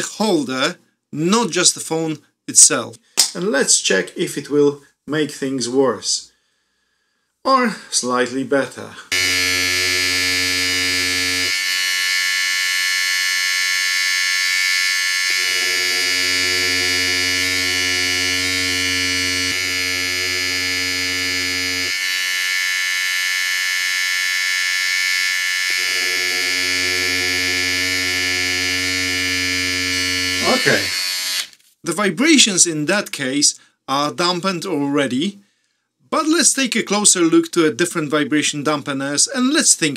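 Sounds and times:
deep hum: 9.1s - 11.7s, 15.3s - 22.0s, 25.7s - 30.4s
electric shaver buzzing: 9.1s - 31.5s.

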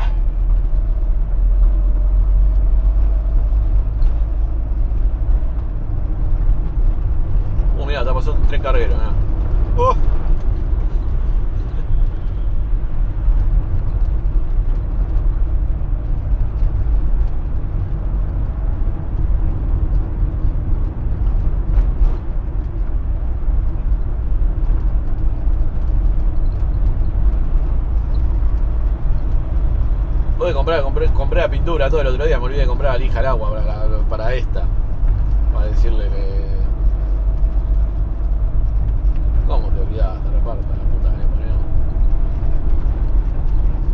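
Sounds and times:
van engine and road rumble: 0.0s - 43.9s.

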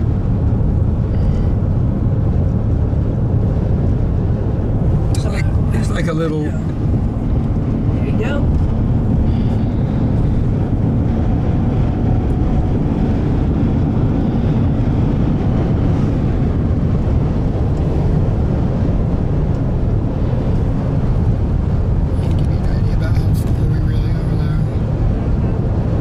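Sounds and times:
car road and engine rumble: 0.0s - 26.0s.

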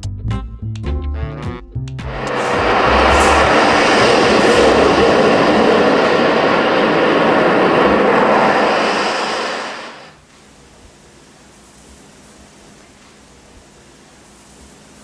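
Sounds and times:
loud steady rushing noise: 2.0s - 10.2s.

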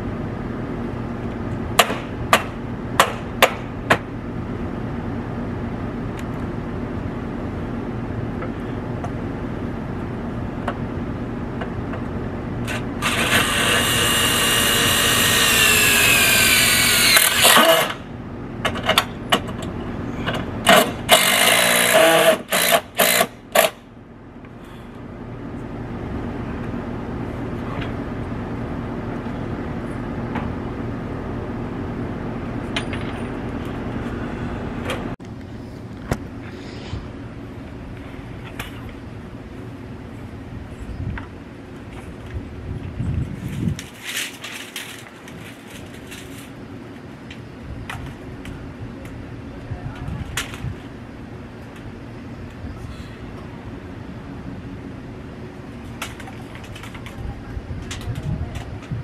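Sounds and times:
cordless drill whining: 13.0s - 18.0s.

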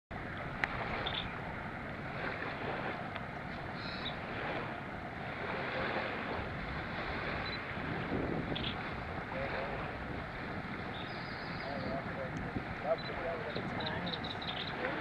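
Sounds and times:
water moving at the surface: 0.1s - 15.0s
wind on the microphone: 0.2s - 15.0s.

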